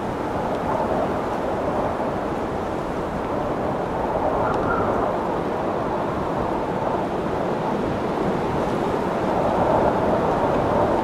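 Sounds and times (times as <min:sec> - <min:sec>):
strong wind rushing: 0:00.0 - 0:11.0.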